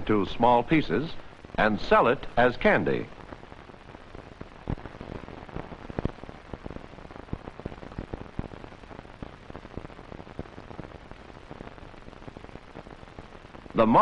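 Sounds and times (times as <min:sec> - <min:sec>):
film soundtrack hiss: 0:00.0 - 0:14.0
clicks and pops: 0:04.6 - 0:08.5.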